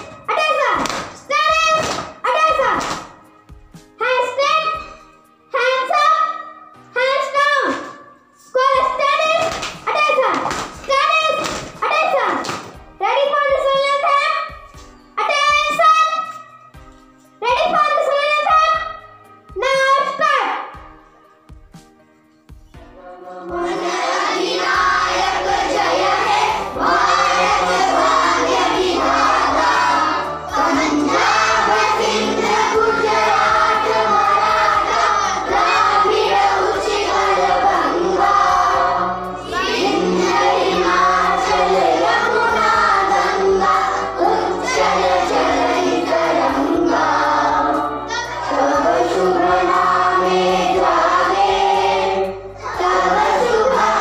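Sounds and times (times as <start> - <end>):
children singing: 23.0 - 54.0.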